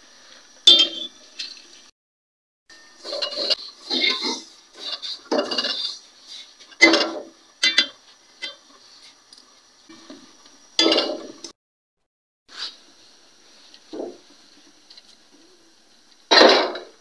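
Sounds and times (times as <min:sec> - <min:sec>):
metal spatula scraping steel pan: 0:02.9 - 0:08.6.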